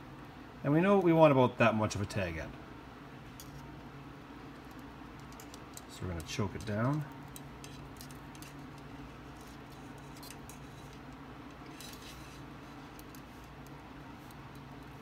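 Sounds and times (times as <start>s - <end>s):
steady low hum: 0.0s - 15.0s
steel cable clicking and scraping: 4.5s - 15.0s.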